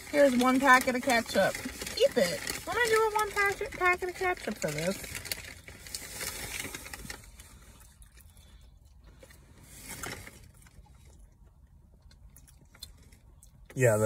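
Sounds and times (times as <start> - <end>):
paper bag rustling: 0.0 - 7.8, 9.7 - 10.6.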